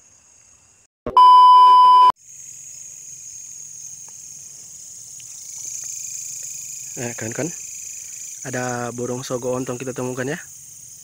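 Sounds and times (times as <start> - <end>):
insects chirring: 0.0 - 0.9, 2.2 - 11.0
loud electronic beep: 1.1 - 2.1.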